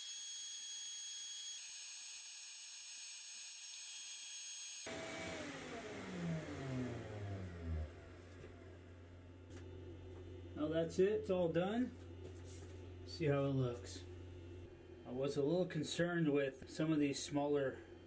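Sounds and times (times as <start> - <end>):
motor winding down: 4.8 - 9.3
router spindle whining: 4.8 - 10.6
low hum: 4.9 - 18.0.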